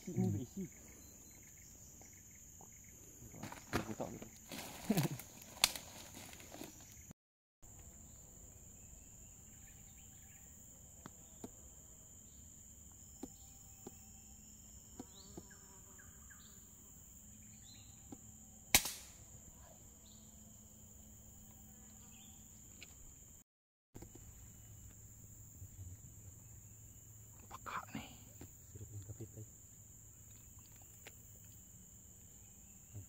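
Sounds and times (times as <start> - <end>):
faint bird chirps: 0.0 - 5.2, 12.2 - 18.2, 21.0 - 23.1, 25.6 - 28.9
insect drone: 0.0 - 23.4, 24.0 - 33.0
air rifle shot: 18.7 - 19.2.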